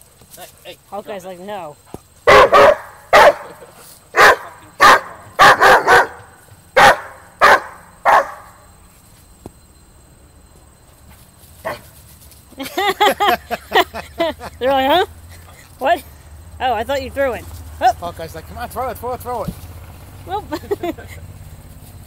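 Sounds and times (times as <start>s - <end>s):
dog barking: 2.2s - 8.6s.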